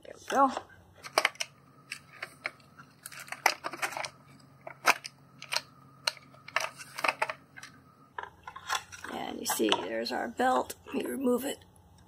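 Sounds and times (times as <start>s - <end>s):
plastic housing clicking and snapping: 1.0s - 9.1s.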